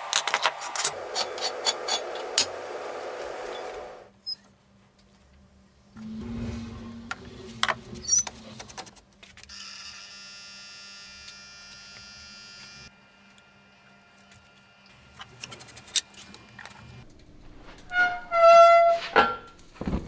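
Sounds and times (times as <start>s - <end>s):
furnace electrical buzz: 0.0s - 4.4s, 5.8s - 17.9s
metal tongs clanking and scraping: 0.1s - 2.6s
low hum: 5.2s - 8.9s, 14.9s - 18.4s.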